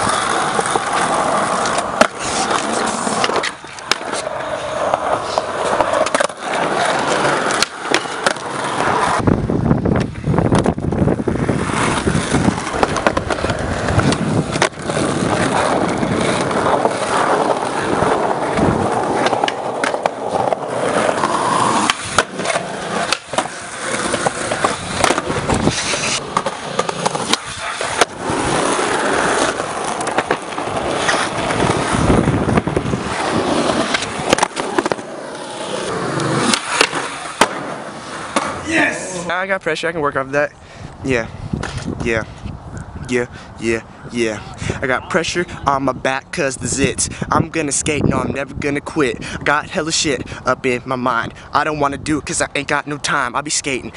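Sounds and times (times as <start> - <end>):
skateboard clacks: 0.0 - 9.2, 11.6 - 38.6
skateboard wheels rolling on concrete: 0.0 - 53.9.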